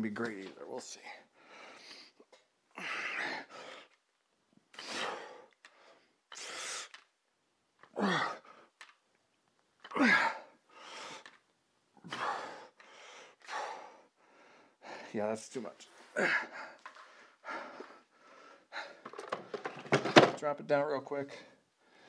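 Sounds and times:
man breathing forcefully: 1.2s - 4.0s, 4.7s - 7.0s, 10.0s - 11.3s, 12.0s - 15.1s, 16.1s - 19.7s.

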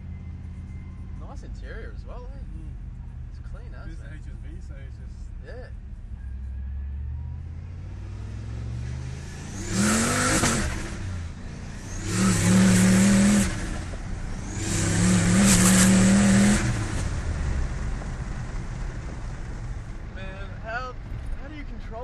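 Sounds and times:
car engine accelerating hard: 6.0s - 22.0s.

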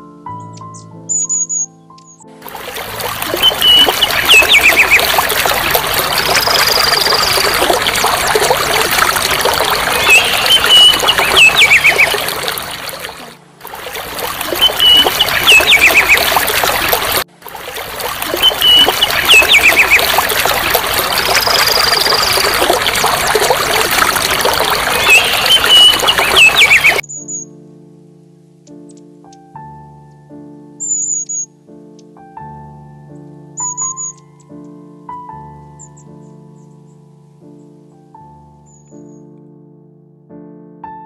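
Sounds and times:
water splashing and trickling: 2.4s - 27.0s
wings beating in water: 2.4s - 27.0s
bird whistle call: 10.0s - 12.3s, 14.6s - 16.3s, 25.0s - 27.5s.

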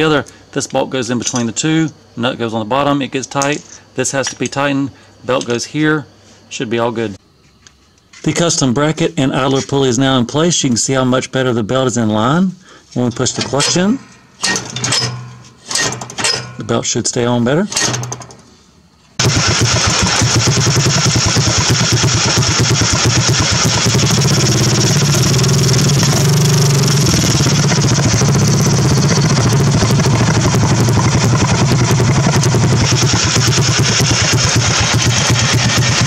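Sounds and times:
lawn mower engine running: 19.2s - 36.0s.

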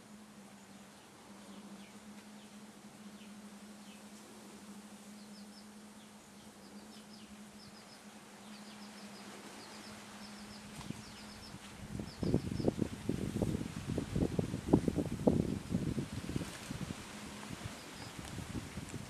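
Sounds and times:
faint high chirping: 0.0s - 12.8s
low hum: 0.0s - 19.0s
steady hiss: 0.0s - 19.0s.

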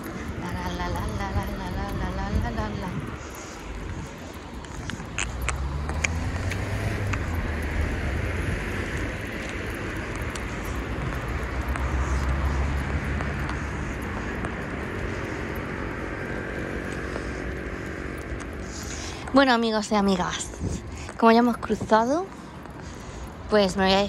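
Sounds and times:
vehicle engine running: 0.0s - 21.2s
traffic hiss: 0.0s - 21.7s
sharp clicks: 3.6s - 7.8s.

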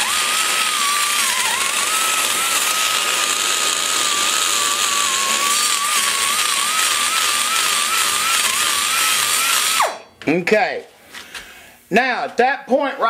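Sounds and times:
die grinder whining: 0.0s - 10.0s.

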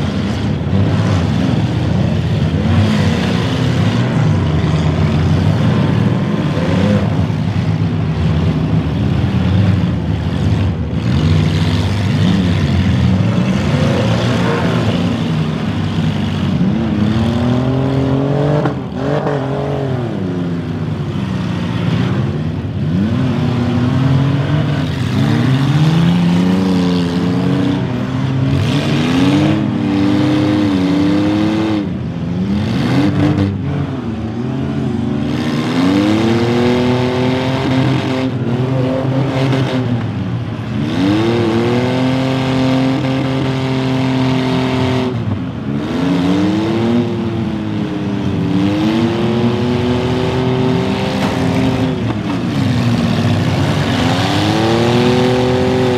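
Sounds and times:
car engines revving: 0.0s - 55.9s
tires spinning on dirt: 0.0s - 55.9s.

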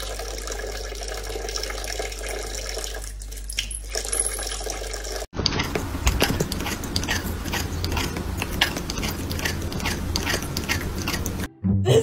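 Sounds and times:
cat crunching dry kibble: 5.6s - 11.5s.

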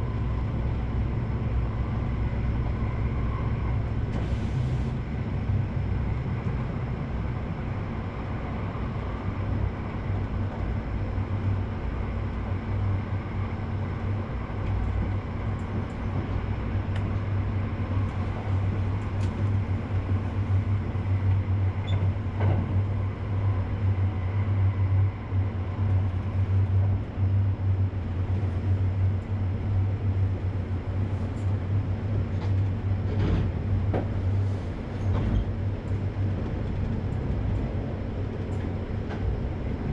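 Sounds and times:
train rumbling: 0.0s - 39.9s.

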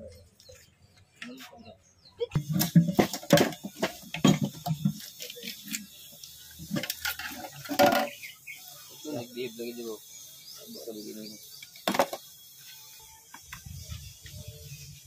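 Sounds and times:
metal clanks and scrapes: 2.4s - 5.9s, 6.7s - 8.2s.

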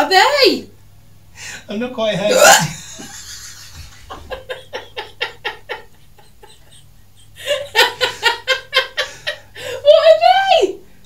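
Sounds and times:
woman laughing: 2.3s - 10.1s.

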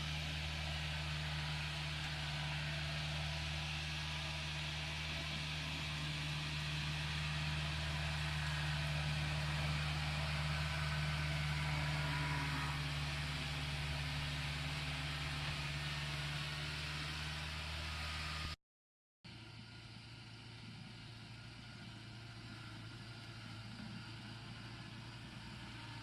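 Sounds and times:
combine harvester diesel engine: 0.0s - 18.6s, 19.3s - 26.0s.

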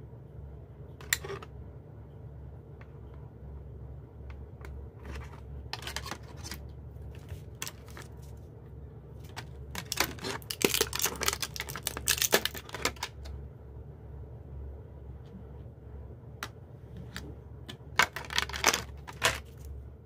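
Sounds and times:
plastic bag crinkling: 9.3s - 13.1s, 18.0s - 19.7s.

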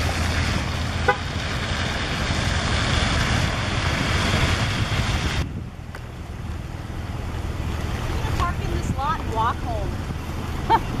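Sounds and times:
low vehicle rumble: 0.0s - 11.0s
splashing water rushing: 0.0s - 11.0s
wind on microphone: 2.9s - 5.8s.

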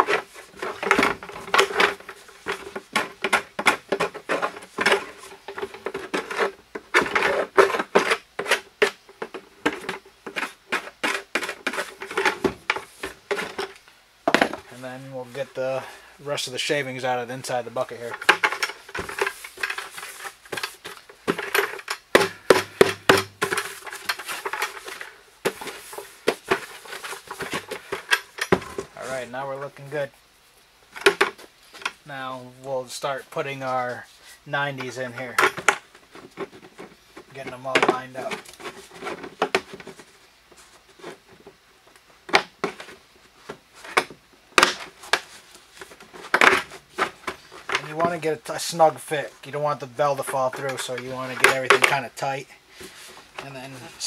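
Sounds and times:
plastic bucket knocking and rattling: 0.0s - 13.7s, 18.0s - 29.0s.

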